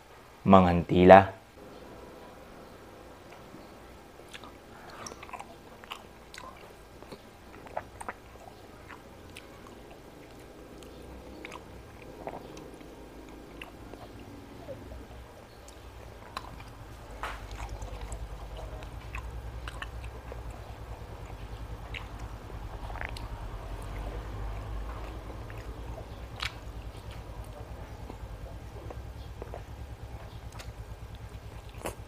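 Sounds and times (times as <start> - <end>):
person chewing: 4.2 - 32.0.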